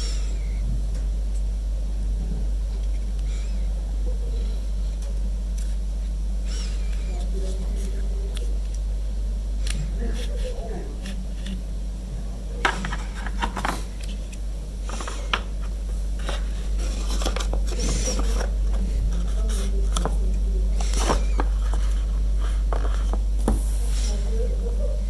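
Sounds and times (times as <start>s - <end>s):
steady low hum: 0.0s - 25.0s
plastic parts clicking and scraping: 12.6s - 20.2s.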